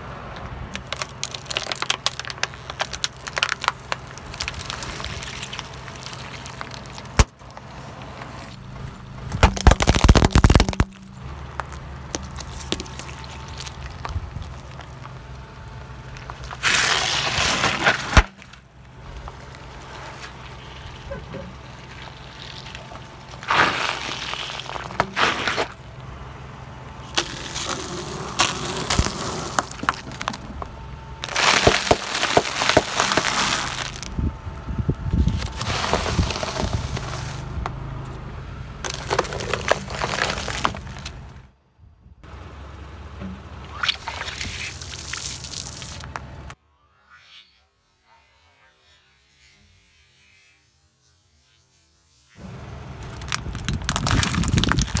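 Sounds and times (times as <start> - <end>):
sharp cracks and pops: 0.4 - 7.6, 9.3 - 15.3, 27.1 - 34.1, 38.8 - 41.2, 53.0 - 55.0
tyre crushing objects: 0.7 - 8.6, 9.2 - 15.1, 16.2 - 20.4, 21.0 - 25.8, 27.1 - 34.1, 35.2 - 37.4, 38.8 - 41.2, 53.0 - 55.0.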